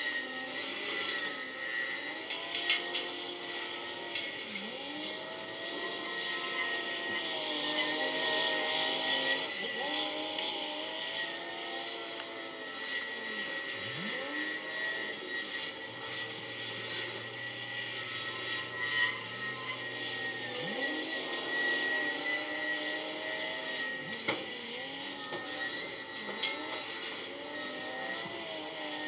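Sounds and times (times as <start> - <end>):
steady high whine: 0.0 - 29.0
diesel engines running and revving: 6.9 - 27.5.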